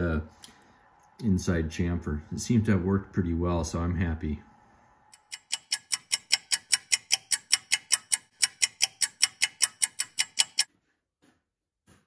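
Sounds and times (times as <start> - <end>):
rapid clock-like ticking: 5.2 - 10.7.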